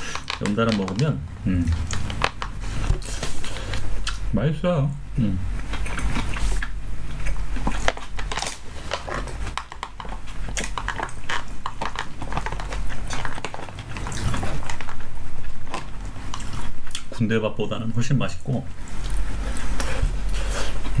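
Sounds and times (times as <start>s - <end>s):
chewing: 5.7s - 17.1s.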